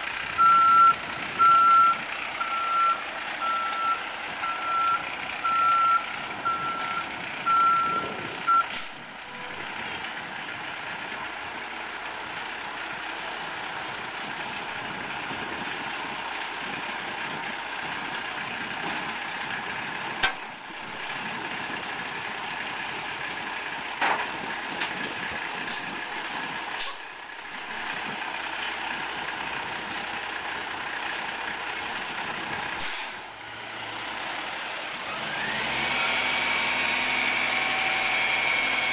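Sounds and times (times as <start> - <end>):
truck engine and hydraulics whine: 0.0 - 38.9
truck reversing alarm beeps: 0.3 - 9.7.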